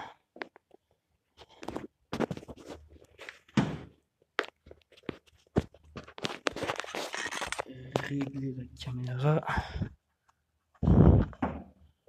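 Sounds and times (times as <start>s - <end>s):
hand handling camera: 4.5s - 8.3s.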